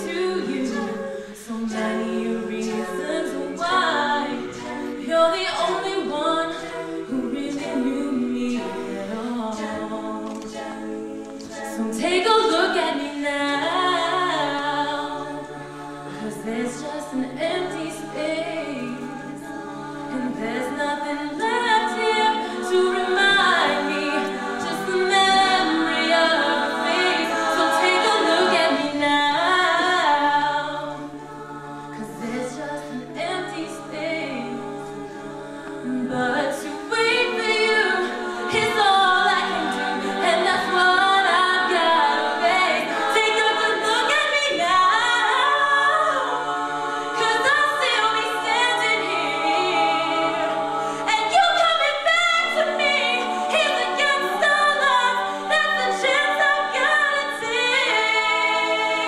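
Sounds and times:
women singing backing harmonies: 0.0 - 59.0.

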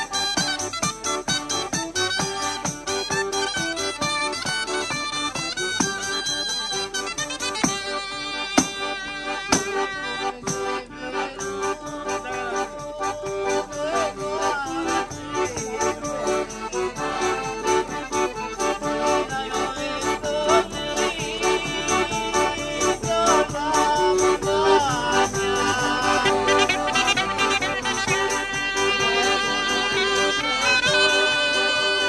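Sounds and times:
piano accordion playing: 0.0 - 32.0
man singing: 8.0 - 17.5, 18.4 - 32.0.

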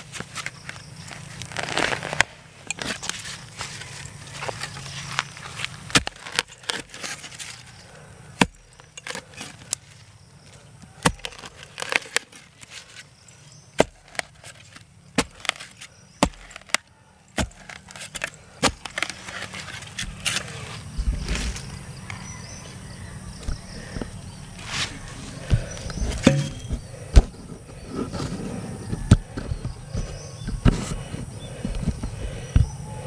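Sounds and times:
metal spade chopping into soil: 5.8 - 7.8, 8.4 - 9.8, 11.0 - 12.4, 13.8 - 16.8, 17.4 - 20.5, 25.9 - 27.3.

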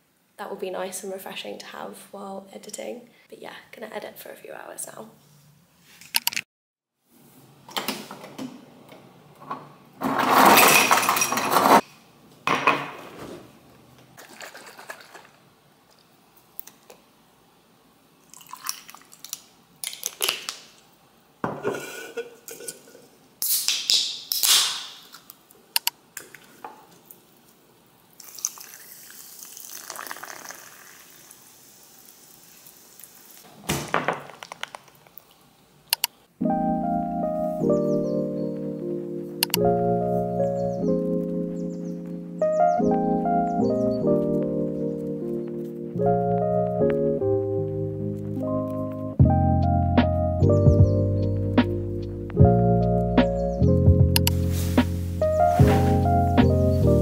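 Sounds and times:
liquid pouring over ice: 18.2 - 19.4, 28.2 - 33.4.

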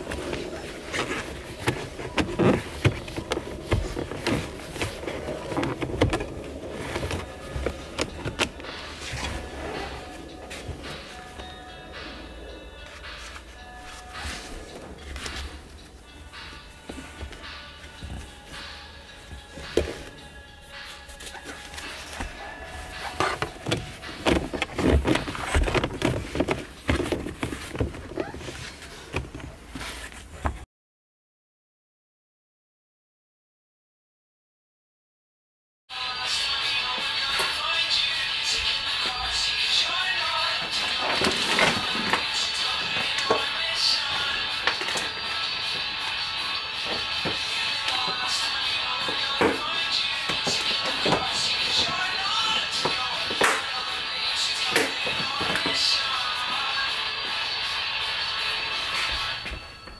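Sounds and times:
rubber boot rubbing and rustling: 0.0 - 12.2, 12.8 - 30.6.

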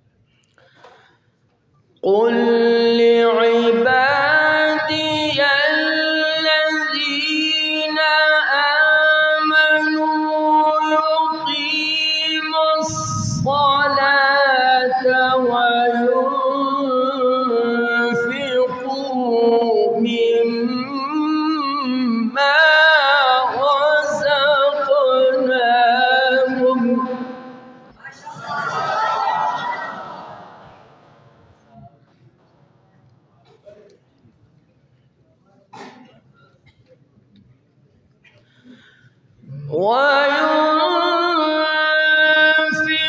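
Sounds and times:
man reciting melodically through microphone: 2.0 - 27.9, 39.4 - 43.0.

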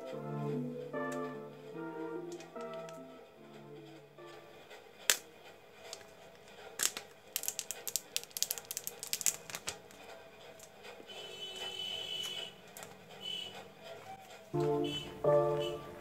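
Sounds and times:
faint background music: 0.0 - 16.0
plastic wrap crinkling: 5.9 - 10.7.

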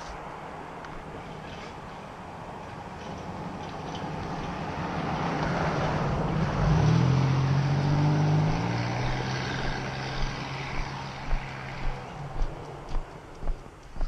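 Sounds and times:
car driving past: 4.0 - 13.4.

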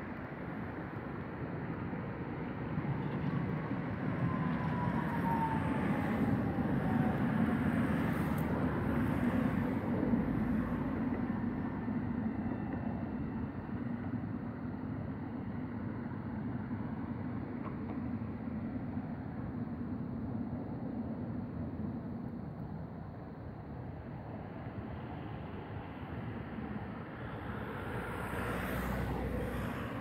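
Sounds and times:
vehicle passing by: 27.5 - 30.0.

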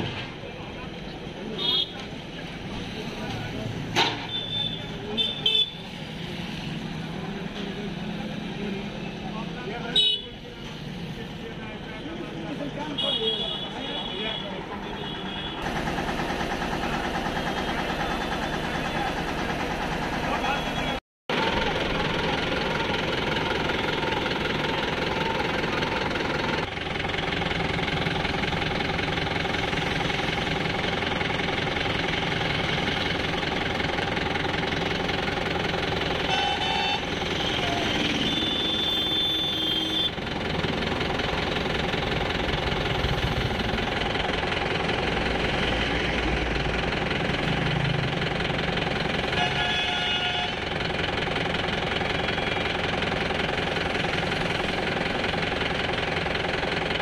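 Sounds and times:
tractor diesel engine running: 10.9 - 57.0.

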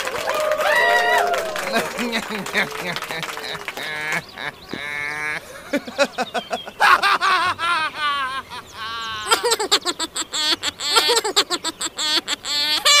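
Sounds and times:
budgerigars chattering and warbling: 4.1 - 5.4.

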